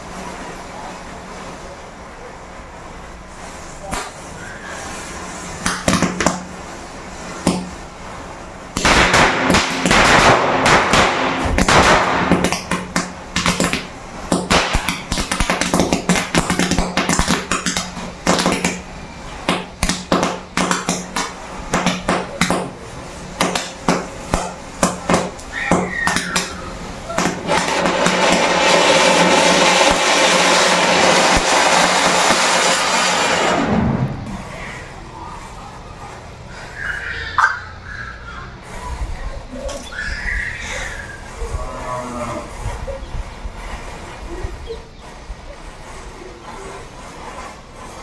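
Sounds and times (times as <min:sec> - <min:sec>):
firecrackers crackling and popping: 0:03.8 - 0:35.6, 0:42.5 - 0:48.0.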